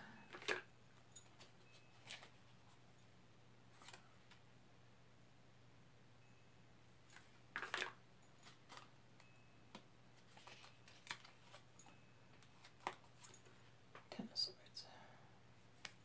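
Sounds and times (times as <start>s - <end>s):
faint steady hum: 0.0s - 16.0s
cards clicking and rustling: 0.3s - 0.7s, 1.4s - 2.4s, 3.7s - 4.4s, 7.1s - 8.9s, 9.7s - 11.7s, 12.4s - 13.5s.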